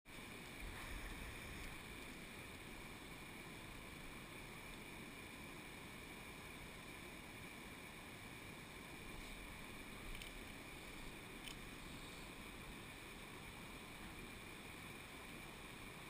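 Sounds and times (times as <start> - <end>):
stream running over rocks: 0.1 - 16.0.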